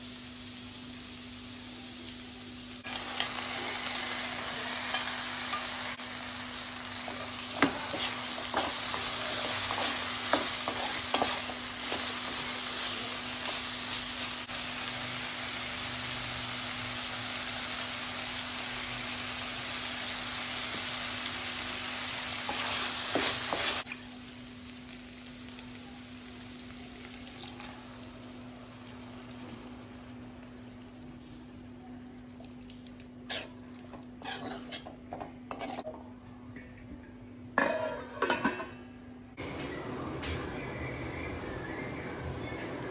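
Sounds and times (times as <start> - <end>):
food sizzling in a frying pan: 0.0 - 35.9
spatula scraping and tapping pan: 7.1 - 12.4, 33.3 - 35.9.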